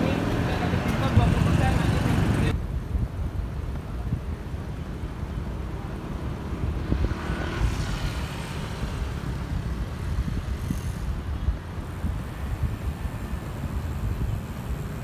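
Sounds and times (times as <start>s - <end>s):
wind buffeting microphone: 0.2s - 15.0s
motor vehicle passing: 6.3s - 11.1s.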